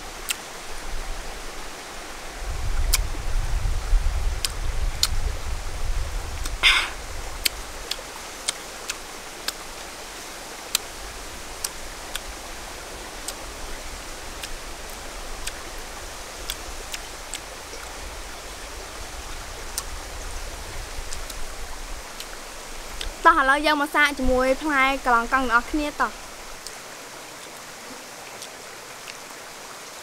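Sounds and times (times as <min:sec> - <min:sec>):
stream rushing: 0:00.0 - 0:30.0
fruit peeling clicks and snaps: 0:04.4 - 0:05.2, 0:16.5 - 0:17.4.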